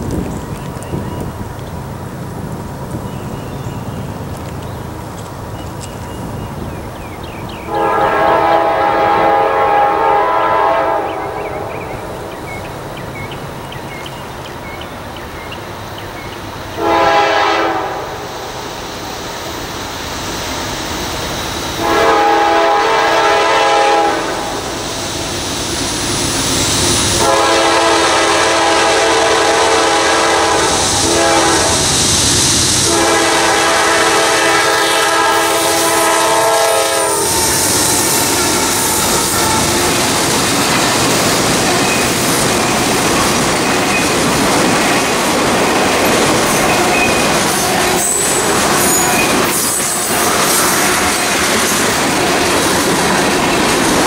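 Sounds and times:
train engine and wheels rumbling: 0.0 - 54.0
locomotive air horn blasts: 7.7 - 11.7, 16.8 - 18.3, 21.8 - 24.6, 27.2 - 31.9, 32.8 - 40.6.

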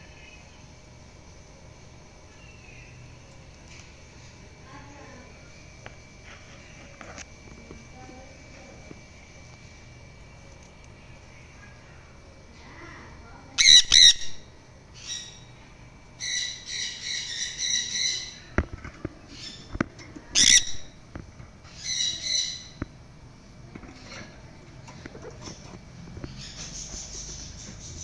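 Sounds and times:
parrot squawking: 13.6 - 14.4, 20.4 - 20.9.

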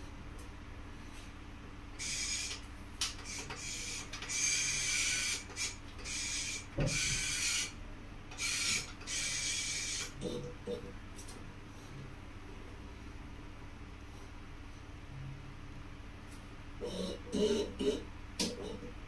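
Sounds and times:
machine motors whirring: 3.2 - 7.7, 8.3 - 10.1.

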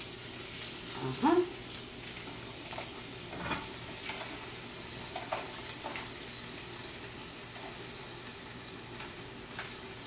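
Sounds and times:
potatoes sizzling in a pan: 0.0 - 10.0
pieces clicking into pan: 2.2 - 6.2.

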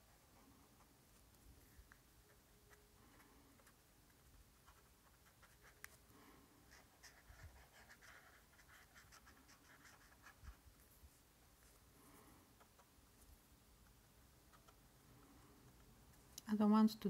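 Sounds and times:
brush pen scratching on paper: 0.8 - 6.0, 6.6 - 11.8.

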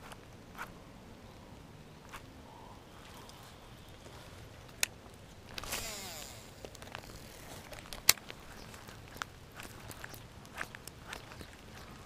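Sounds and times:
line whirring off reel: 5.5 - 7.6
fishing reel click: 5.6 - 7.2.

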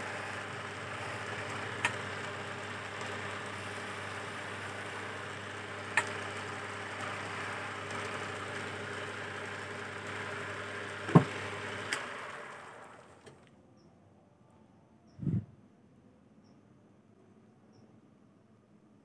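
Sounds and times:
wood lathe motor hum: 0.0 - 13.4
sharp knocks: 11.1 - 11.4.

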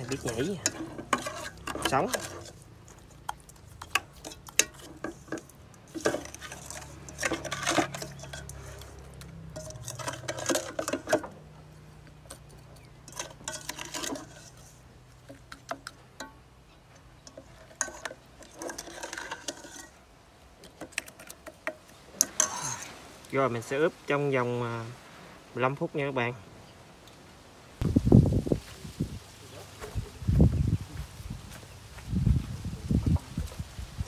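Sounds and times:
utensils clinking against a dish: 0.0 - 11.4, 12.3 - 20.0, 20.8 - 22.9.

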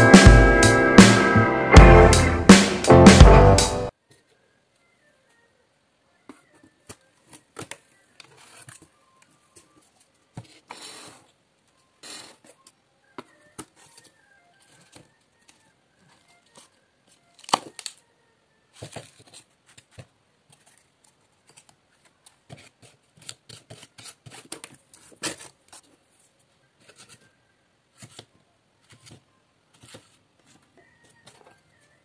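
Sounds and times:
cardboard spatula scraping and tapping: 10.3 - 11.2, 22.4 - 25.9, 28.0 - 30.6
cardboard knife pressing paper: 18.8 - 25.9.

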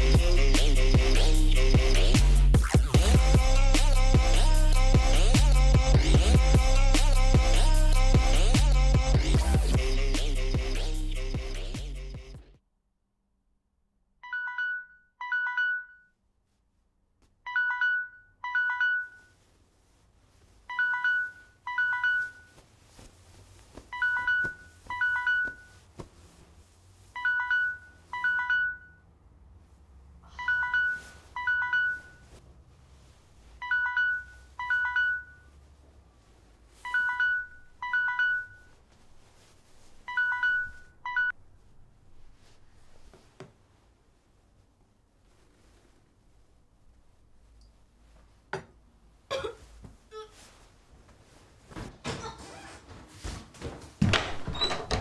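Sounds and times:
phone ringtone ringing: 14.2 - 16.1, 17.5 - 19.4, 20.7 - 22.6, 24.0 - 25.8, 27.2 - 29.0, 30.3 - 32.3, 33.6 - 35.5, 36.9 - 38.8, 40.1 - 41.4.

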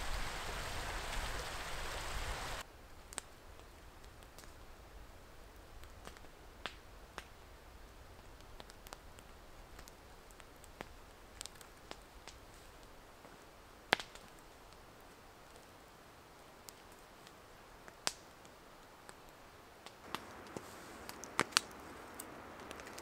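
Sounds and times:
faint steady hiss: 0.0 - 23.0
campfire crackling and popping: 2.8 - 23.0.

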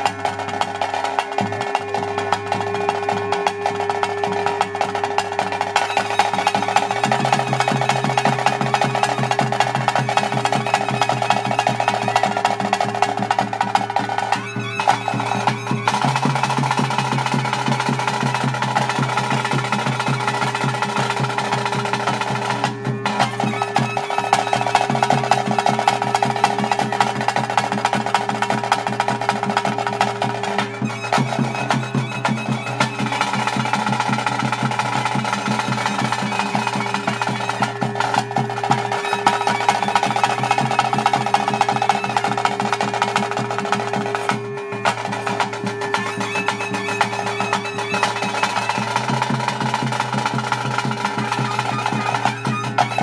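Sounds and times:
drums in fast roll: 0.0 - 53.0
held drone tone: 0.0 - 53.0.

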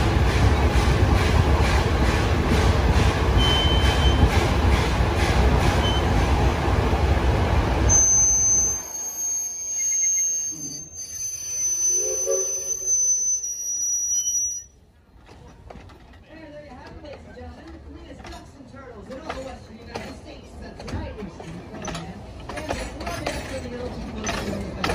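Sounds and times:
train wheels rumbling on track: 0.0 - 14.4, 15.0 - 24.9
thin high squeal: 7.9 - 14.8.

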